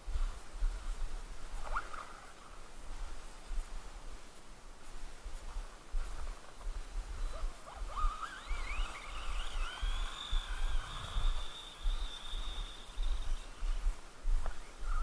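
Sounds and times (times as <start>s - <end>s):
rc car motor whining: 7.7s - 13.7s.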